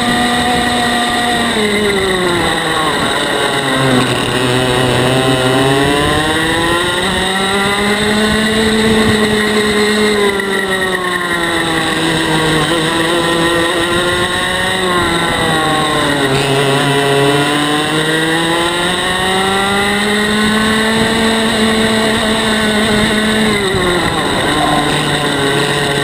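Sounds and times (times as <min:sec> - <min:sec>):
kart engine revving: 0:00.0 - 0:26.0.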